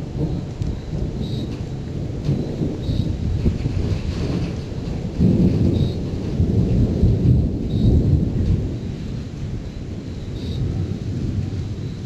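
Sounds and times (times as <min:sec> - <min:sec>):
rolling thunder rumble: 0:00.0 - 0:12.0.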